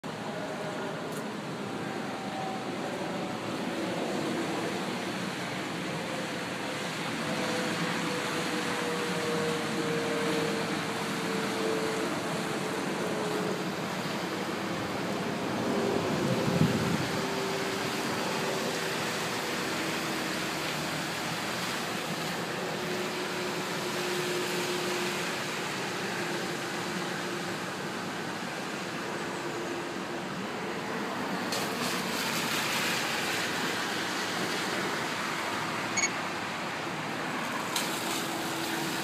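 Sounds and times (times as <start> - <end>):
rushing floodwater: 0.0 - 39.0.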